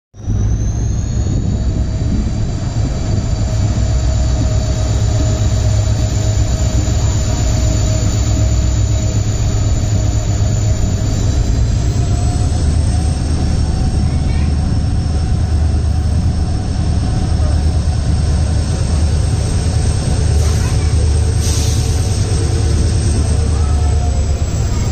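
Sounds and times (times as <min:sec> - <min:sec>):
rushing wind: 0:00.1 - 0:24.9
thin high whine: 0:00.2 - 0:16.3
locomotive low roar: 0:00.2 - 0:24.9
wheel-on-rail noise: 0:00.5 - 0:24.9.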